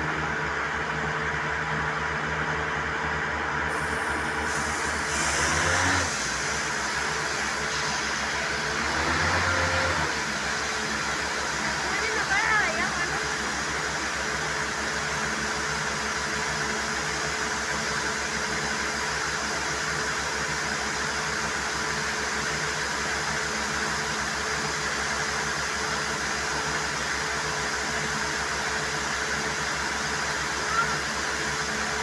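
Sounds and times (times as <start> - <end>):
air compressor engine throbbing: 0.0 - 32.0
compressed air rushing hiss: 3.7 - 11.4.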